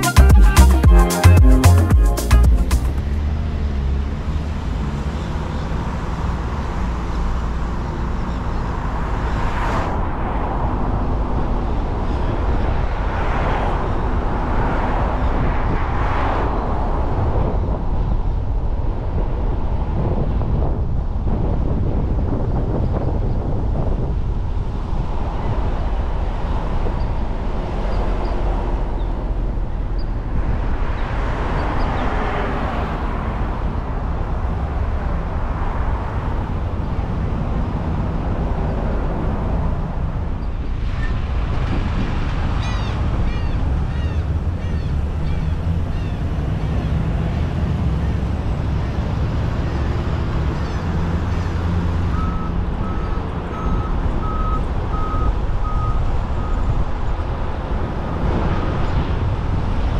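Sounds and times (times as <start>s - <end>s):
car engine and road noise: 0.0s - 59.9s
short electronic beeps: 52.1s - 56.6s.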